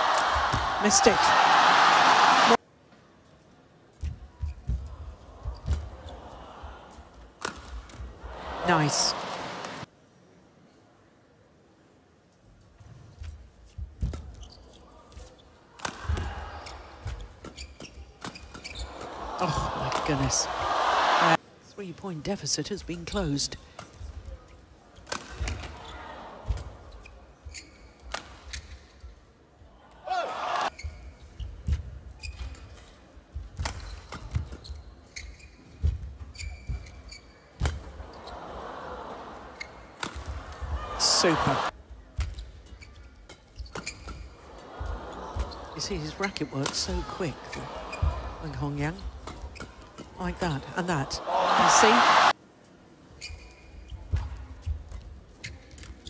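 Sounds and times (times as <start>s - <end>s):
crowd noise: 0.0s - 2.7s, 4.9s - 9.9s, 18.7s - 21.6s, 37.8s - 42.0s, 44.3s - 52.4s
shoes squeaking on court: 13.7s - 15.6s, 16.7s - 19.1s, 26.9s - 29.0s, 30.7s - 33.0s, 33.6s - 38.4s, 42.2s - 44.4s, 53.2s - 56.0s.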